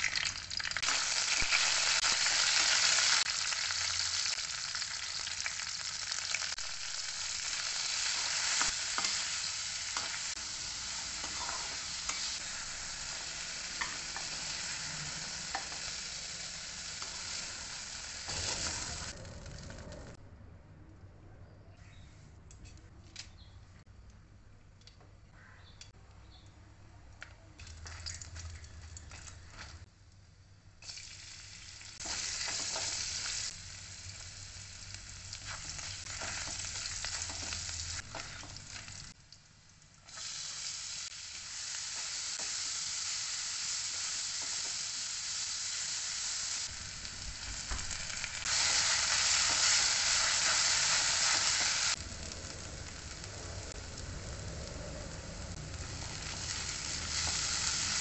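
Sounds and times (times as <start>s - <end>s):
food sizzling in hot oil: 0.0s - 19.2s, 30.8s - 54.6s, 55.3s - 58.0s.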